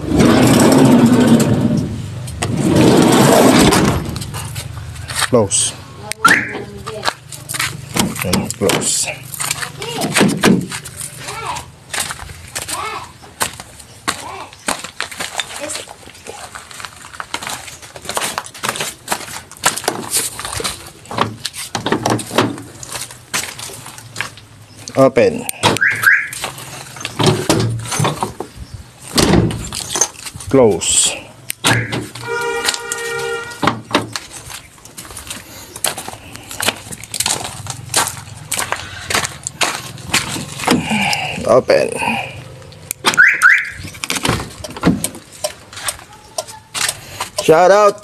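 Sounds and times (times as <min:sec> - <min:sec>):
footsteps crunching on gravel: 0:04.2 - 0:05.7, 0:06.7 - 0:25.0, 0:26.2 - 0:27.2, 0:32.0 - 0:41.4, 0:45.2 - 0:48.0.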